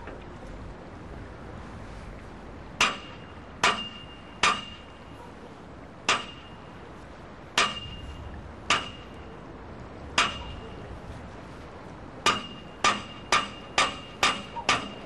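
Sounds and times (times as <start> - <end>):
hammer blows on metal: 2.8 - 5.1, 6.1 - 6.8, 7.6 - 9.3, 10.2 - 10.9, 12.2 - 15.0.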